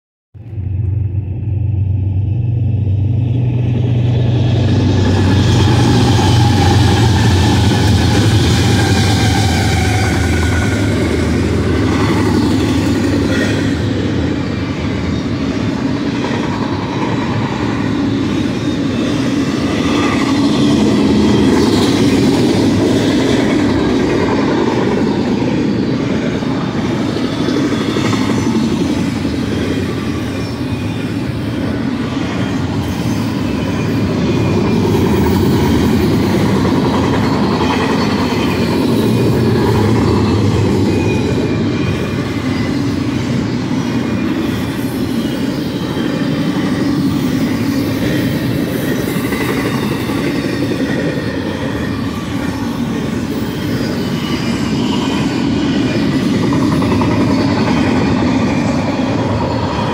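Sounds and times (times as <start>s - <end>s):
diesel locomotive drone: 0.4s - 59.9s
freight cars rolling on rails: 0.4s - 59.9s.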